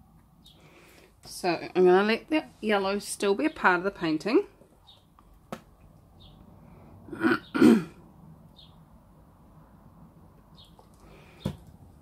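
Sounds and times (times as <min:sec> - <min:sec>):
woman clearing her throat: 0:07.1 - 0:08.0.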